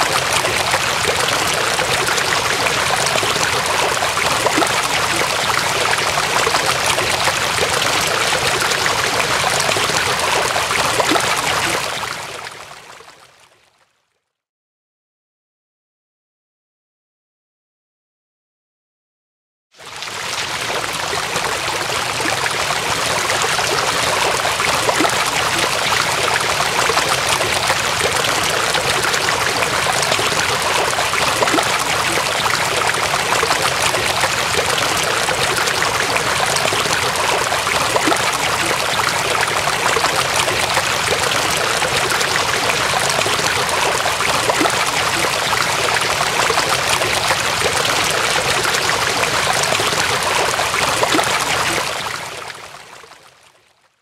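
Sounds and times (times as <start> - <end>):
water running and splashing: 21.2 - 51.8.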